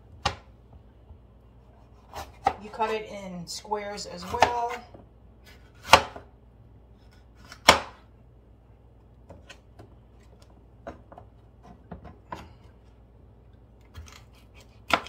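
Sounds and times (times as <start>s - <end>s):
knife chopping on plastic board: 0.1s - 0.5s, 2.0s - 2.6s, 4.2s - 6.3s, 7.4s - 8.0s, 13.9s - 15.0s.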